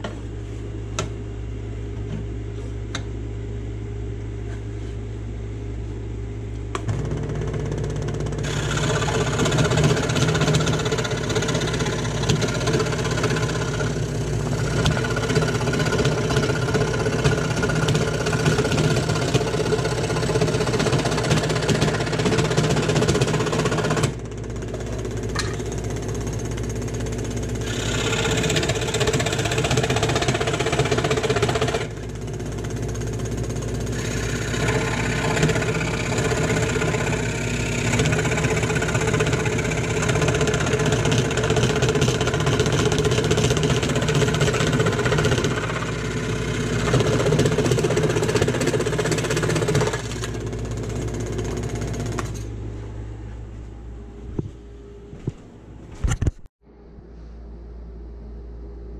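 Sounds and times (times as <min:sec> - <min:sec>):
scroll saw motor running: 0:07.7 - 0:52.5.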